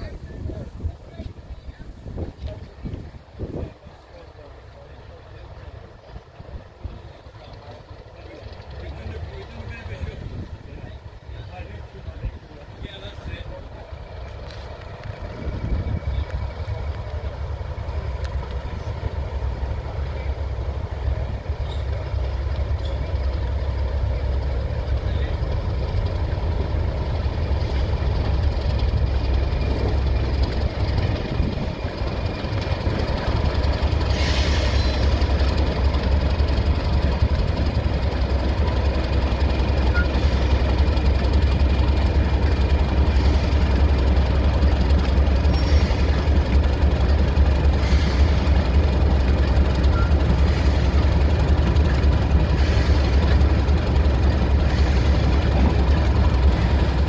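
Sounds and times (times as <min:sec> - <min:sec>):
diesel locomotive rumbling past: 0:00.0 - 0:57.0
brief hisses: 0:34.0 - 0:35.2, 0:47.8 - 0:48.6.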